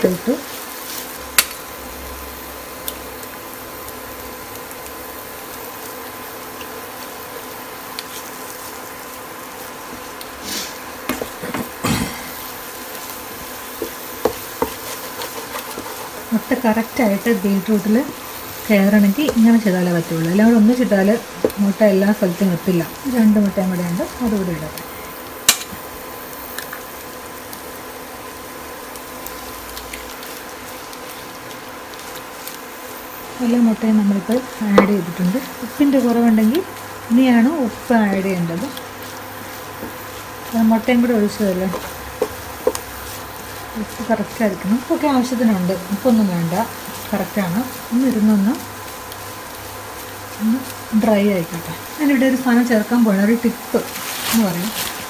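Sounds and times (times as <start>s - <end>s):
food sizzling in a pan: 0.0s - 55.0s
wooden spatula scraping pan: 13.7s - 16.6s.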